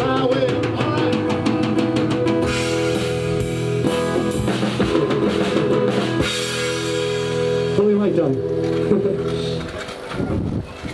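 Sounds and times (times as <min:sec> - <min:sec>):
live rock band playing: 0:00.0 - 0:10.4
heavy drum hits: 0:00.3 - 0:07.7.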